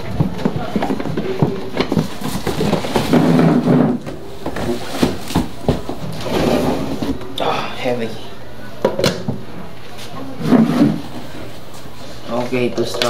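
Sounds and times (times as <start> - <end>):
cardboard box rustling and scraping: 1.8 - 7.2.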